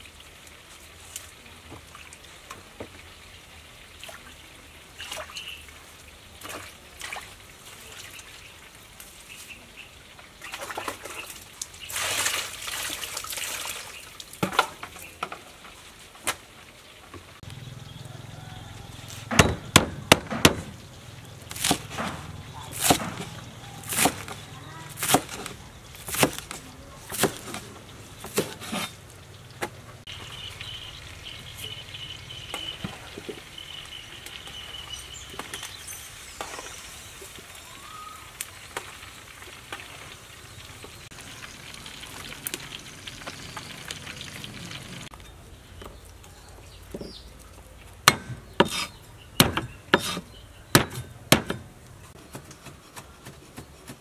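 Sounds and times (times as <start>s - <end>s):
knife chopping on wooden board: 19.3s - 20.7s, 21.5s - 27.6s, 48.1s - 51.7s
metal spatula scraping: 28.2s - 29.0s, 48.1s - 49.0s, 49.9s - 51.2s
food sizzling in a wok: 30.1s - 45.1s.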